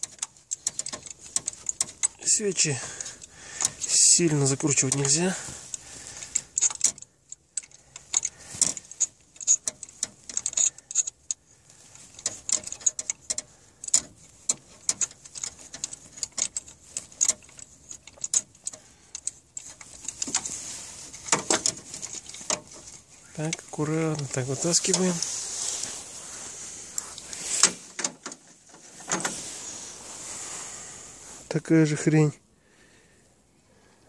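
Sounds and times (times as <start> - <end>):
wrench clicking and clinking: 0.0 - 2.3, 4.9 - 11.4, 12.0 - 20.5.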